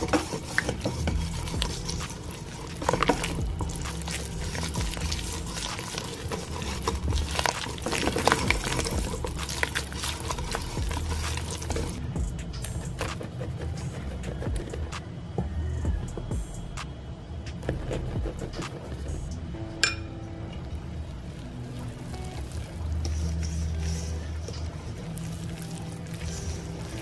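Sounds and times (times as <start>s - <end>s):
batter sloshing and squelching: 0.0s - 15.0s, 20.9s - 27.0s.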